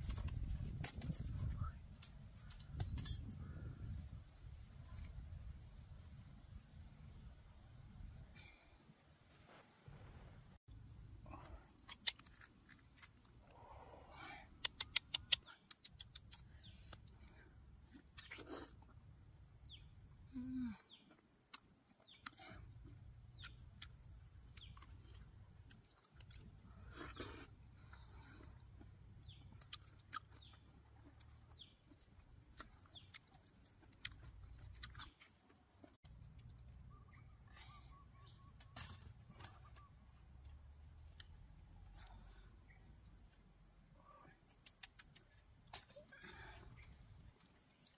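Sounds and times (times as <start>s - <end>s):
sharp clicks: 14.6s - 17.1s, 44.4s - 45.8s.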